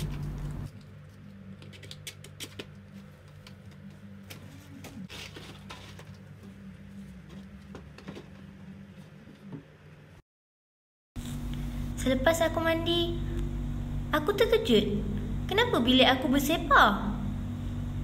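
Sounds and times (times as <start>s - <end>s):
paper banknotes rustling: 0.0s - 6.6s
steady low hum: 11.2s - 18.0s.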